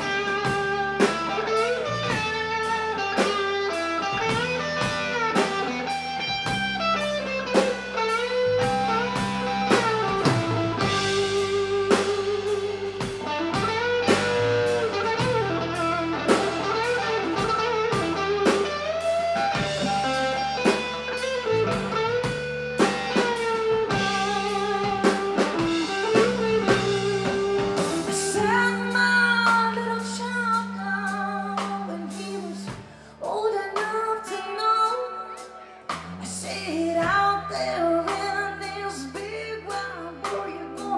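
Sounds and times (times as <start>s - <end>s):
electric guitar solo: 0.0s - 33.1s
bass guitar: 0.0s - 40.9s
drums: 0.0s - 40.9s
woman singing: 28.1s - 40.9s.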